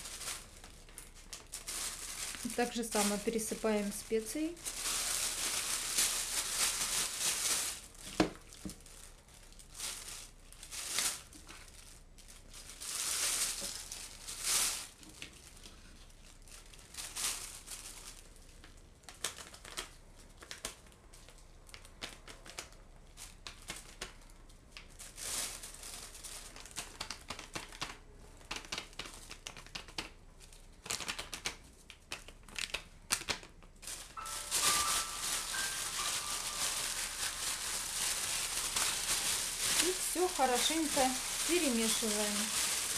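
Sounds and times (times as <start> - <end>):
plastic bag crinkling: 0.0 - 24.2, 24.8 - 27.9, 28.6 - 42.9.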